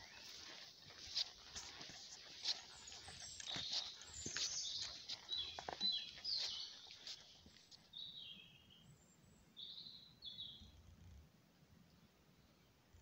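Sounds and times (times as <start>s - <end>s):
footsteps crunching on dry leaves: 0.0s - 8.1s
songbirds chirping: 0.0s - 13.0s.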